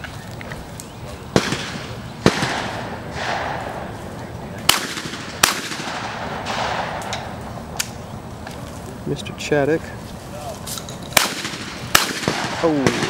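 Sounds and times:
shotgun shots echoing: 1.3s - 4.0s, 4.6s - 7.4s, 11.2s - 13.0s.

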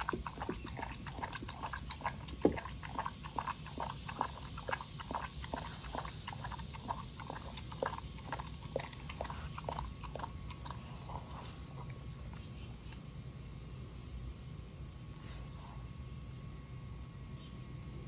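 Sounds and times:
dog lapping liquid: 0.0s - 12.5s.

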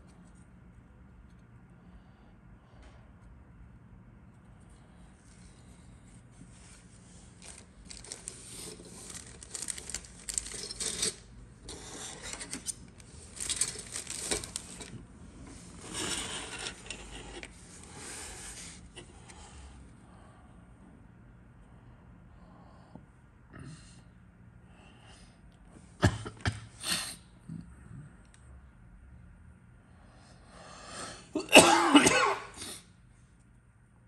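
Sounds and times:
hard plastic clicking and rustling: 7.4s - 17.6s.

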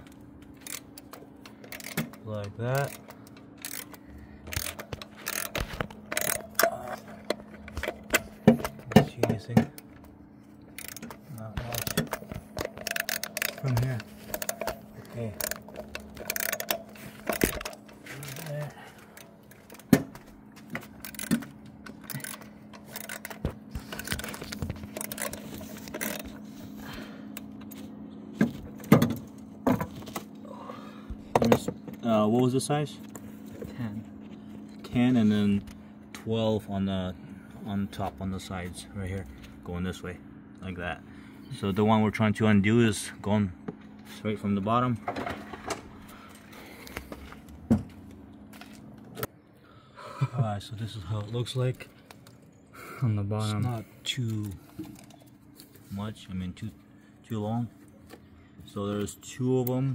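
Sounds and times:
faint steady hum: 0.0s - 59.9s
metal tools clicking and knocking: 0.6s - 9.8s, 10.7s - 18.6s, 20.8s - 26.3s.

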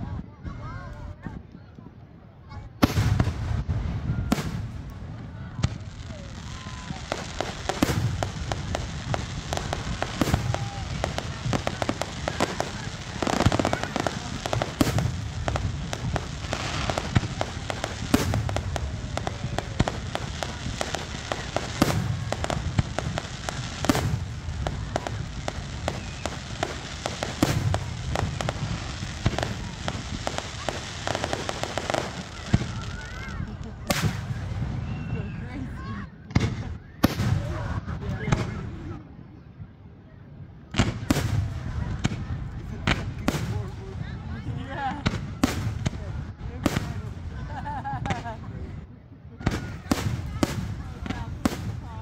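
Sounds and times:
firework shells booming: 2.8s - 35.1s.

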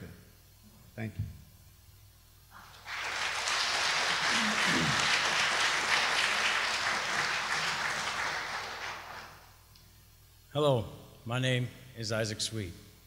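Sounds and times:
audience applauding: 2.6s - 9.6s.

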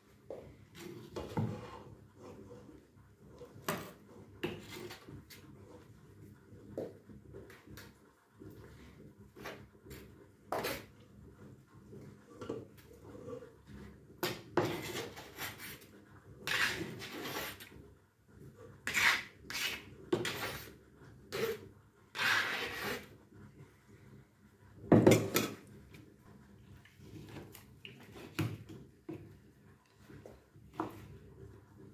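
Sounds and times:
knife scraping on board: 14.6s - 15.8s, 16.4s - 17.7s, 18.8s - 20.7s, 21.3s - 23.1s.

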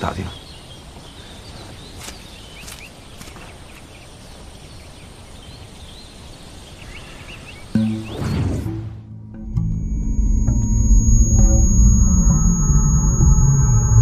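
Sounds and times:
background hiss: 0.0s - 8.0s
small birds chirping faintly: 0.0s - 8.8s.

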